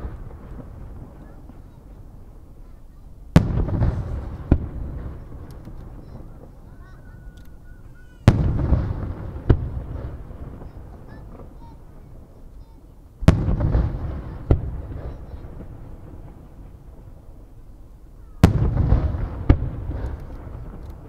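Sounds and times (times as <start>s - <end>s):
firework shells bursting: 0.0s - 12.3s, 18.4s - 21.0s.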